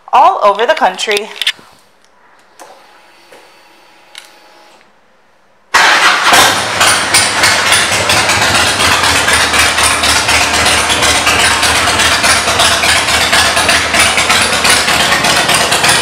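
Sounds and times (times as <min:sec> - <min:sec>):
motorcycle engine starting and running: 0:05.7 - 0:16.0.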